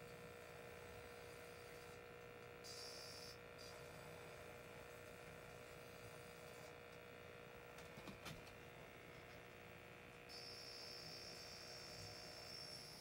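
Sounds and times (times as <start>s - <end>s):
faint high-pitched whine: 10.3s - 13.0s.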